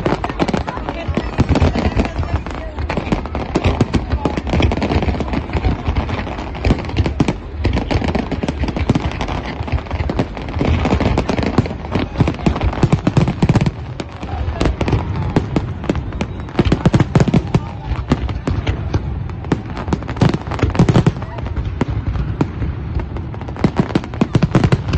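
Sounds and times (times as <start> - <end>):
fireworks bangs and crackling: 0.0 - 24.9.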